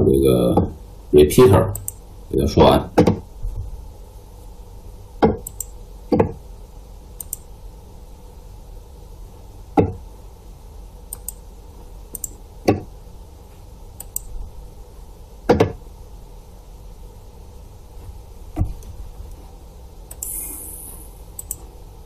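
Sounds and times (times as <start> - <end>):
low steady hum: 0.0 - 22.0
mouse clicks: 1.7 - 2.0, 5.3 - 5.7, 7.2 - 7.4, 11.1 - 11.4, 12.1 - 12.4, 14.0 - 14.3, 20.1 - 21.6.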